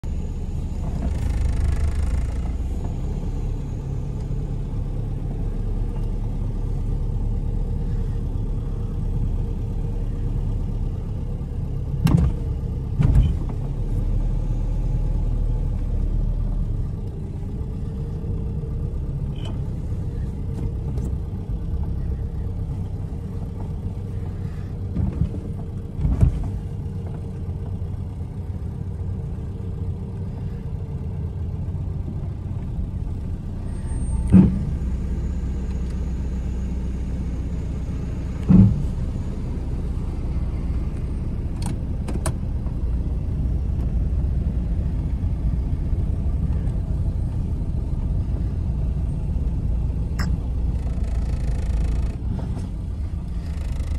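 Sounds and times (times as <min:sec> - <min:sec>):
car engine running: 0:00.0 - 0:53.9
sharp thumps from car: 0:12.0 - 0:12.4, 0:38.5 - 0:39.0.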